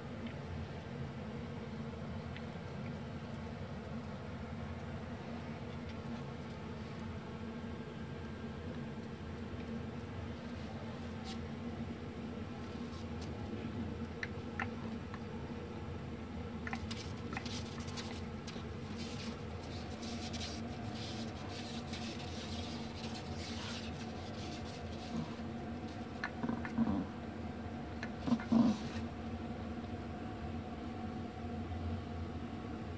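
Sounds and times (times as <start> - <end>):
steady low hum: 0.0 - 32.9
dog sniffing: 16.6 - 27.0, 28.0 - 29.1
claws scratching and clicking on tiles: 16.7 - 27.0.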